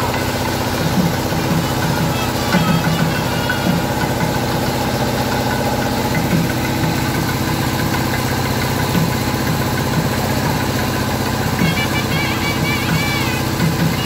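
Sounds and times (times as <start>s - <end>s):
tractor diesel engine idling: 0.0s - 14.0s.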